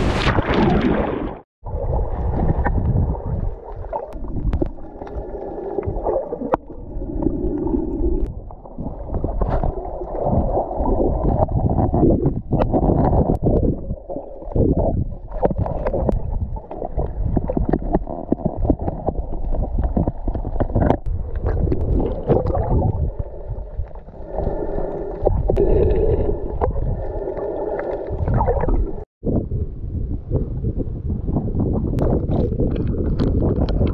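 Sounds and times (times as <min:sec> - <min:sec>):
underwater water movement: 0:00.0 - 0:29.2
wind on microphone: 0:01.6 - 0:04.7, 0:08.1 - 0:24.6, 0:28.1 - 0:33.9.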